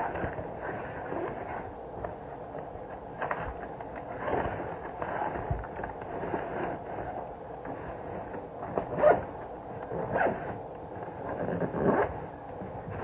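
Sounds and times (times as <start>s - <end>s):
backpack zipper being pulled: 8.8s - 9.3s, 9.9s - 10.6s, 11.3s - 12.3s.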